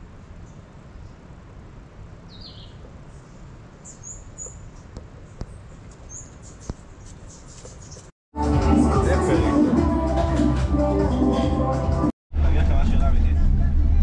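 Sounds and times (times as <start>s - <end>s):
faint bird chirps: 2.3s - 8.1s.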